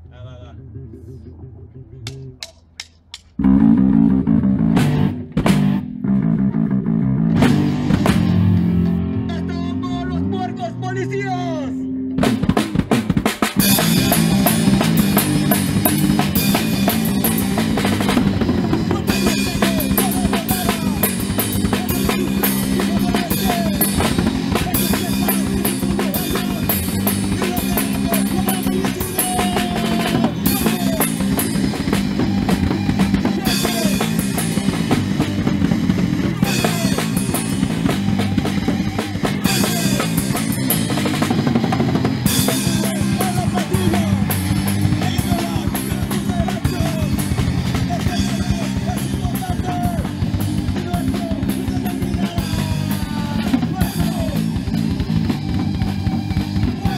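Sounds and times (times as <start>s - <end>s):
man singing: 0.0s - 2.7s, 9.3s - 11.9s, 13.7s - 35.0s, 36.3s - 41.3s, 42.3s - 54.8s, 56.6s - 56.9s
bass guitar: 0.0s - 56.9s
drum kit beating: 2.0s - 6.0s, 7.3s - 9.7s, 12.2s - 56.9s
electric guitar: 3.4s - 56.9s.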